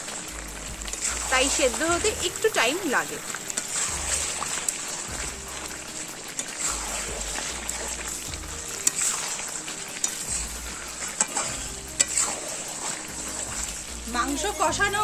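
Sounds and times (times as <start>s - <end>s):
chicken frying in oil: 0.0s - 15.0s.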